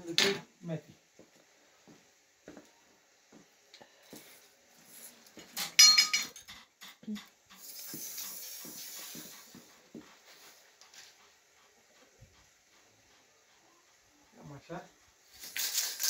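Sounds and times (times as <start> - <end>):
steady hiss: 0.0 - 16.0
metallic clatter with ringing: 5.6 - 7.4.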